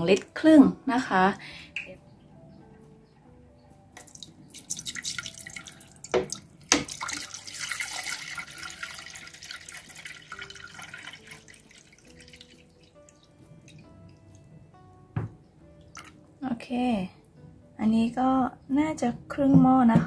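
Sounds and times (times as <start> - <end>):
water pouring into metal pot: 4.0 - 14.0, 15.9 - 16.2.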